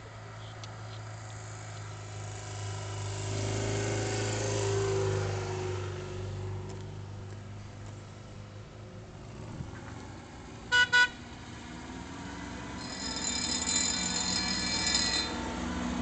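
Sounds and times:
road traffic engine hum: 0.0 - 16.0
vehicle passing close by: 1.2 - 7.6.

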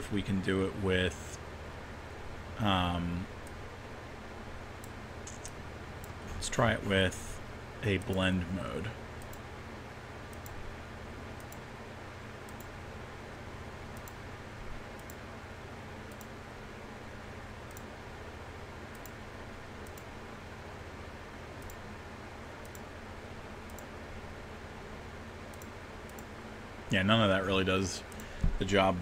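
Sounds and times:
low room hum: 0.0 - 29.0
faint mouse clicks: 9.2 - 9.4, 10.3 - 10.6, 11.4 - 11.7, 12.4 - 12.8, 13.9 - 14.2, 14.9 - 15.2, 16.1 - 16.4, 17.6 - 17.9, 18.9 - 19.2, 19.8 - 20.1, 21.6 - 21.8, 22.6 - 22.9, 23.6 - 23.9, 25.5 - 26.3, 28.1 - 28.5.

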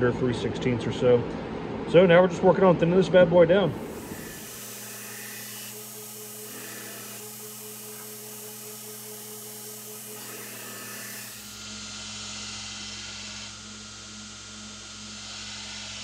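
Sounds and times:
belt grinder grinding steel: 3.8 - 16.0.

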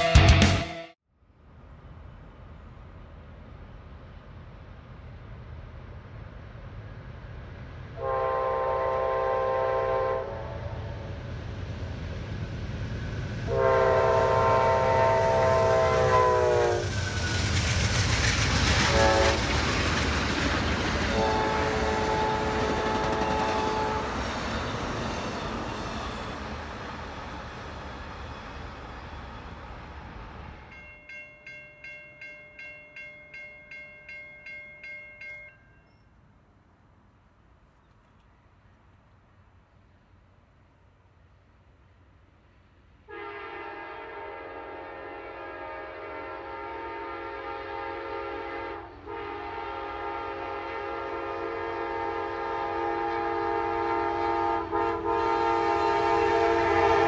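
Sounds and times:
train rumbling past: 0.0 - 57.0
train horn blasts: 8.0 - 11.1, 13.4 - 16.9, 18.8 - 19.4, 21.0 - 24.4, 43.1 - 57.0
crossing signal bell ringing: 30.6 - 36.2.

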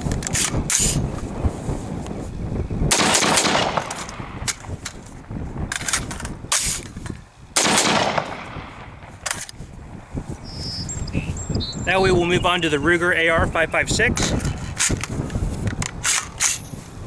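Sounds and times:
rifle shots with echo: 2.9 - 4.4, 7.6 - 9.1.

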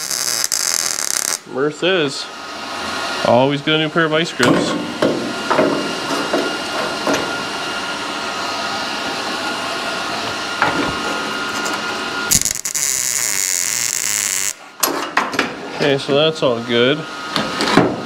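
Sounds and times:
power tool bright hiss: 0.0 - 1.4, 12.3 - 14.6
power tool whining on metal: 0.0 - 1.4, 5.3 - 14.8.

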